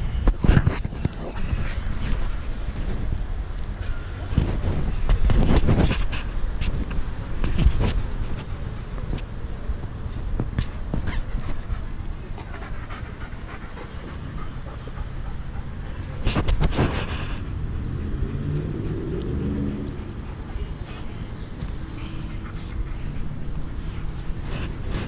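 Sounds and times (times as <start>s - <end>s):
puppies panting: 11.1s - 17.5s, 19.9s - 25.0s.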